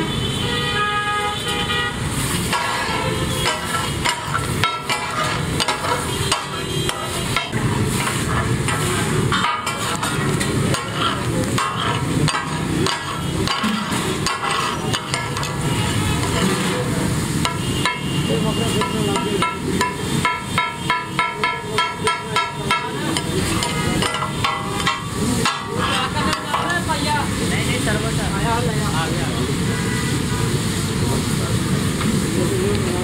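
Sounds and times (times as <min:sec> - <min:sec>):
meat sizzling: 0:02.0 - 0:33.0
metal tools clanking on iron griddle: 0:02.5 - 0:27.1.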